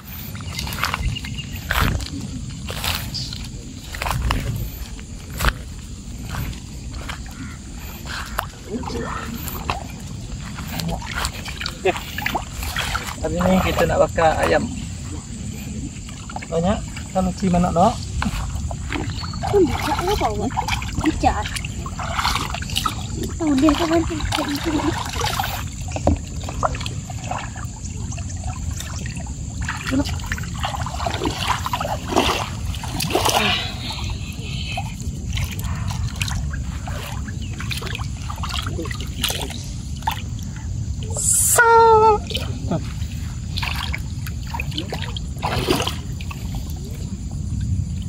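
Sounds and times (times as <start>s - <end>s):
footsteps splashing in water: 0.0s - 15.3s, 16.0s - 40.6s, 42.3s - 48.0s
water trickling and sloshing: 0.0s - 48.0s
short noisy scrapes or splashes: 43.0s - 46.4s.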